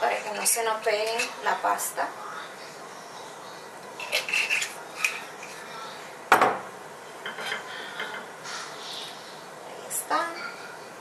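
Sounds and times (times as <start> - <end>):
dishes clinking: 3.9 - 5.6, 6.3 - 8.4.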